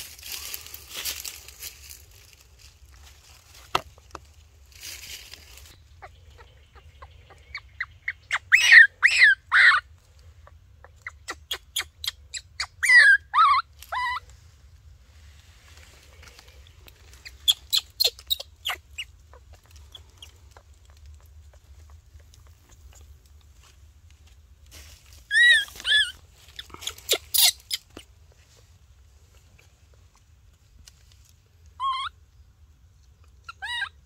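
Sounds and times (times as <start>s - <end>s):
animal clucking calls: 5.8s - 14.3s, 16.2s - 23.2s.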